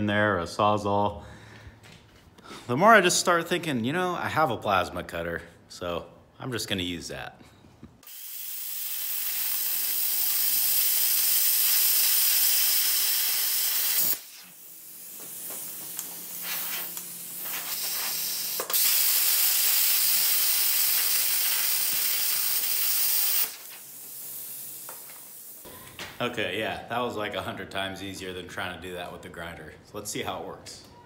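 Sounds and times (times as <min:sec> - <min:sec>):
plasma cutter hissing: 0:08.0 - 0:25.7.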